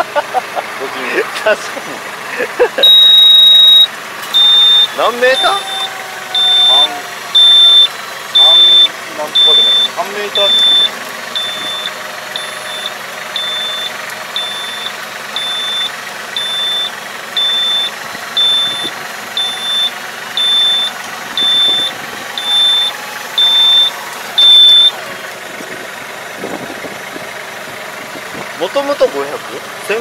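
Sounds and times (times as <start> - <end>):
tractor diesel engine running: 0.0 - 30.0
warning beeper: 2.8 - 25.0.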